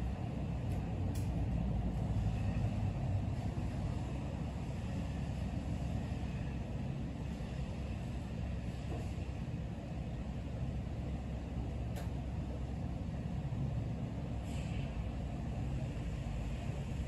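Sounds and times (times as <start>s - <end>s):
low rumbling background noise: 0.0s - 17.0s
faint click: 11.9s - 12.2s.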